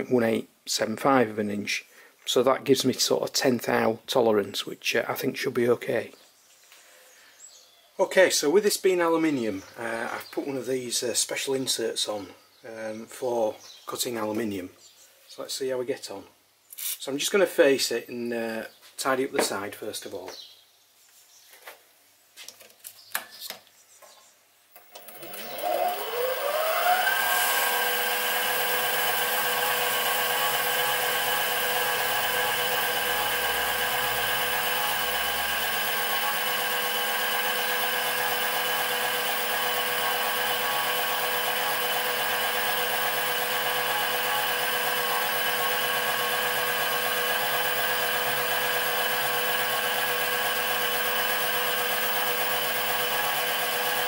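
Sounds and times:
cutting tool turning metal bar: 0:24.8 - 0:54.0
lathe motor whining: 0:24.8 - 0:54.0.

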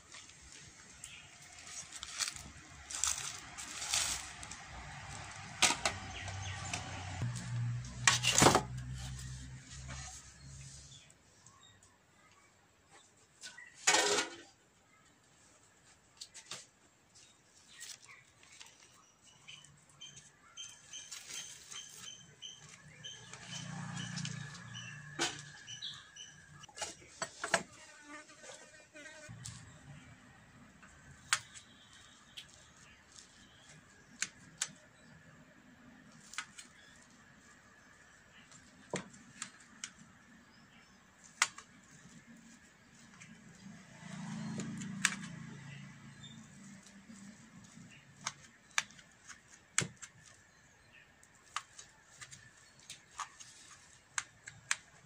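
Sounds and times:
leaf rustling: 0:00.0 - 0:07.8, 0:17.2 - 0:26.0, 0:41.2 - 0:50.5, 0:51.2 - 0:55.0.

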